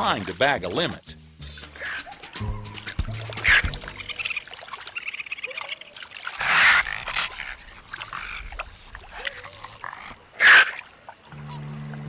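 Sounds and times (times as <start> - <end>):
water splashing in a bowl: 1.7 - 12.0
raccoon squeaky calls: 3.2 - 8.6.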